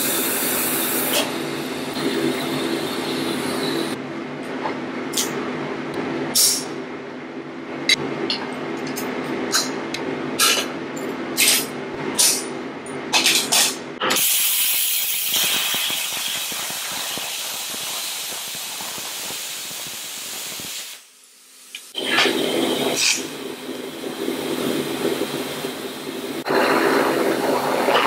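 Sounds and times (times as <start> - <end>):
welder crackling hiss: 14.1 - 23.4.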